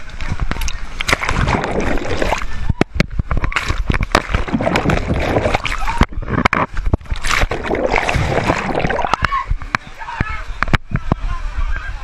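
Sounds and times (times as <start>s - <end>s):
seawater splashing: 0.0s - 2.8s, 3.4s - 10.0s.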